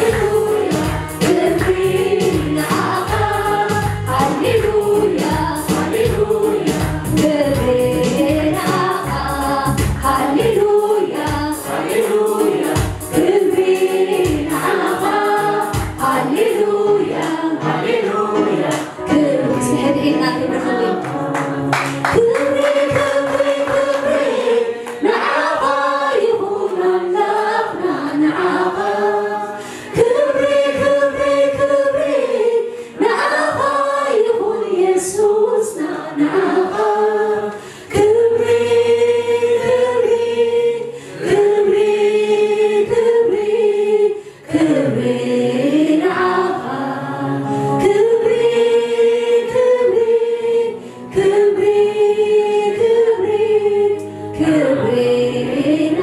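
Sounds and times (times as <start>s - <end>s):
woman lead singer: 0.0s - 11.7s
choir singing a cappella: 0.0s - 56.0s.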